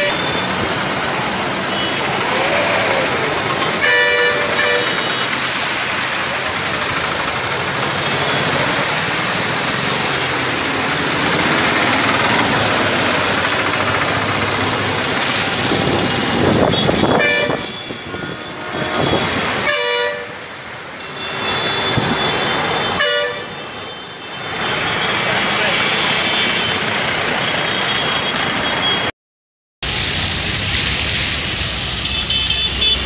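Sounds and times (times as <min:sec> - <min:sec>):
vehicle horns honking: 0:00.0 - 0:00.8, 0:01.6 - 0:05.6, 0:16.2 - 0:25.0, 0:32.0 - 0:33.0
tyres splashing through floodwater: 0:00.0 - 0:28.9.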